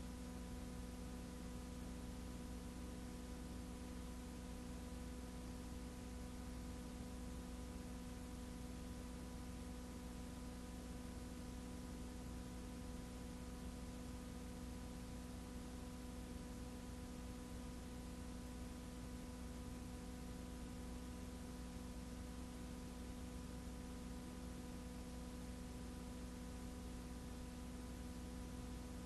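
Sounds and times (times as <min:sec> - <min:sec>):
electrical hum: 0:00.0 - 0:29.0.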